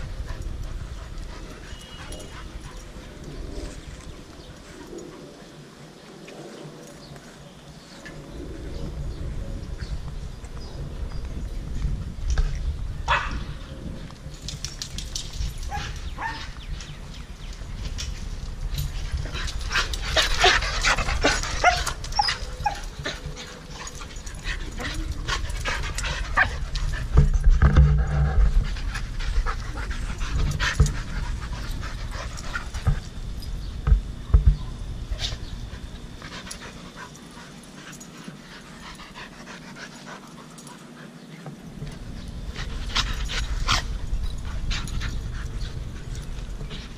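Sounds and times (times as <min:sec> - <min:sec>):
dogs panting: 0:00.0 - 0:07.8, 0:14.5 - 0:33.5, 0:35.0 - 0:46.9.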